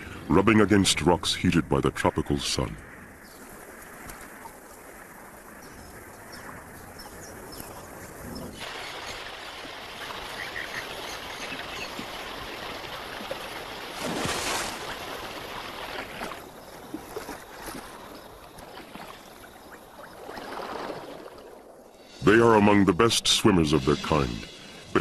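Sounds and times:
water lapping against rocks: 8.2s - 22.1s.

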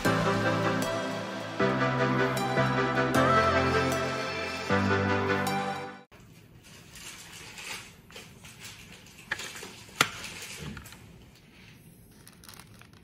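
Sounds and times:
plastic packaging handling: 6.2s - 11.1s, 12.1s - 13.0s.

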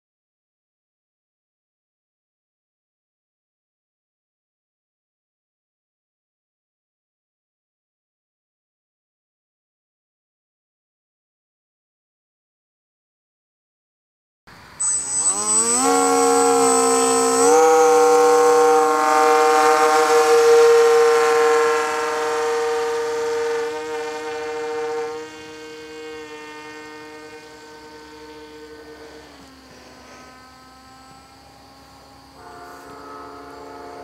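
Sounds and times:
model plane motor whine: 14.5s - 34.0s.

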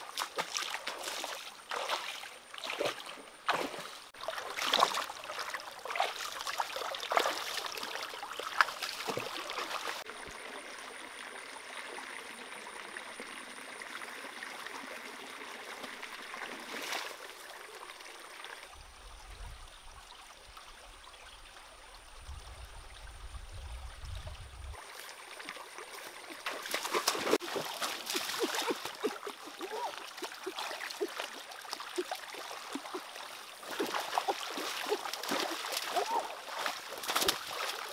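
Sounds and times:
stream trickling over rocks: 0.0s - 37.9s
hands splashing in water: 33.6s - 37.9s.

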